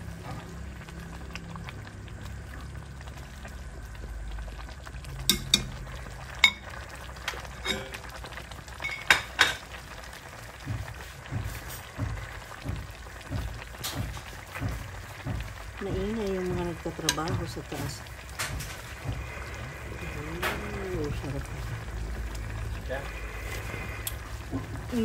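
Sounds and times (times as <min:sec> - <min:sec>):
soup bubbling in a pot: 0:00.0 - 0:25.0
metal ladle clinking on pot: 0:05.3 - 0:05.8, 0:07.6 - 0:08.0
dull low thuds: 0:10.5 - 0:20.0.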